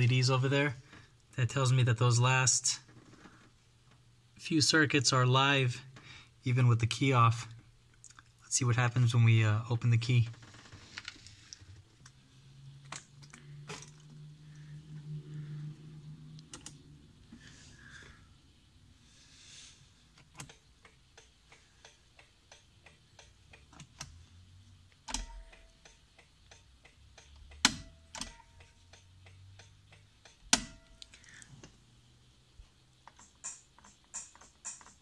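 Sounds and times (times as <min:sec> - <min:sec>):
sharp clicks: 0:16.4 - 0:16.8
car electrics ticking: 0:20.1 - 0:31.5, 0:33.0 - 0:35.0.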